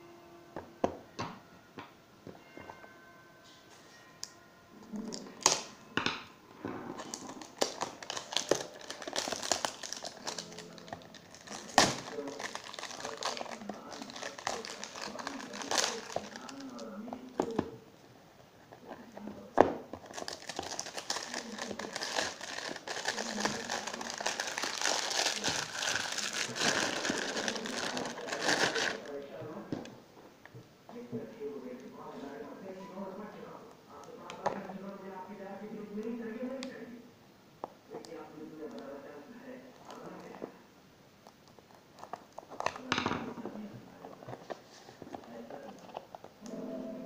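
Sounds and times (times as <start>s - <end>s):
plastic wrap crinkling: 7.0s - 17.8s, 18.6s - 29.3s.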